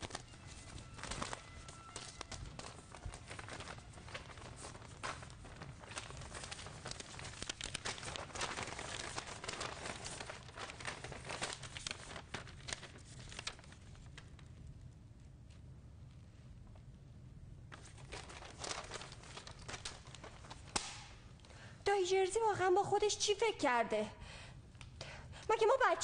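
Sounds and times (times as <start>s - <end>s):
paper envelopes tearing: 0.0s - 14.1s, 17.8s - 21.2s
paper rustling and crinkling: 0.0s - 14.6s, 17.7s - 21.3s
low steady hum: 0.0s - 26.0s.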